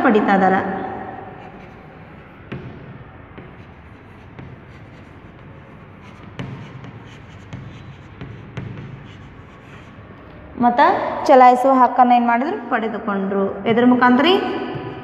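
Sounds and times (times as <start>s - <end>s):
chalk scratching on blackboard: 1.3s - 10.2s
chalk tapping on blackboard: 1.3s - 10.2s.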